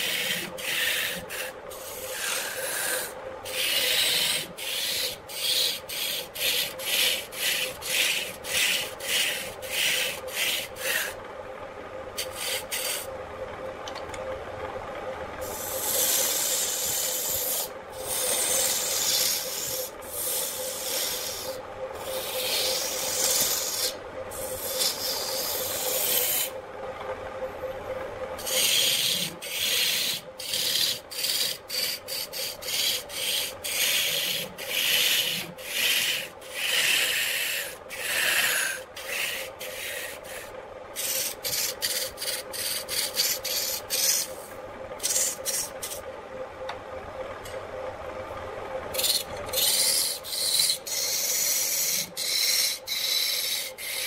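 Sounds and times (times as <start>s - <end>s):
gouge cutting spinning wood: 0.0s - 11.2s, 12.2s - 13.1s, 15.4s - 26.6s, 28.4s - 46.0s, 48.9s - 54.0s
lathe humming: 0.0s - 54.0s.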